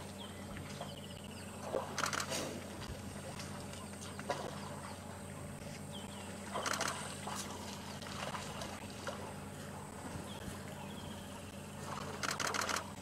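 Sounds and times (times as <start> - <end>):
low hum: 0.0 - 13.0
elephants splashing in water: 0.6 - 5.5, 6.4 - 13.0.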